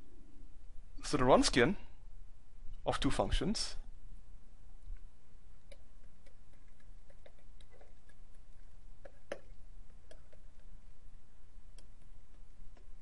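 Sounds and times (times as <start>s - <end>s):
low steady hum: 0.0s - 13.0s
stylus tapping on pen tablet: 5.7s - 10.7s.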